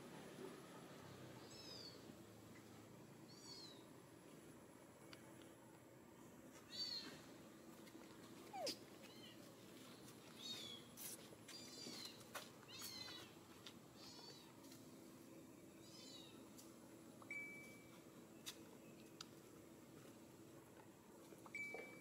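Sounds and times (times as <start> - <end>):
infant monkey squeaky cries: 8.5 - 9.4.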